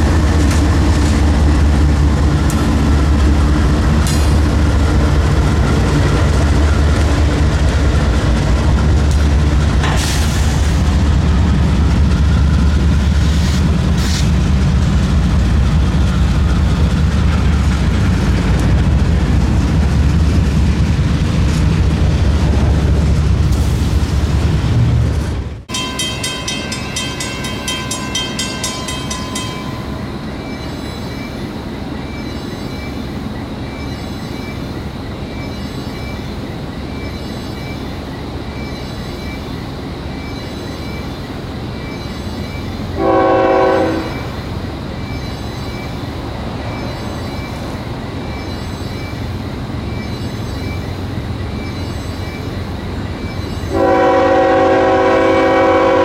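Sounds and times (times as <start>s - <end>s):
freight train rumbling past: 0.0s - 56.0s
rapid high ringing: 25.7s - 31.1s.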